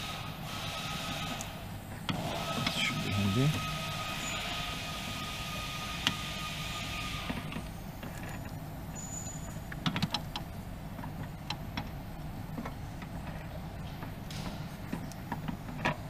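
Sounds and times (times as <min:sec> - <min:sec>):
steady hum with high tone: 0:00.0 - 0:12.5.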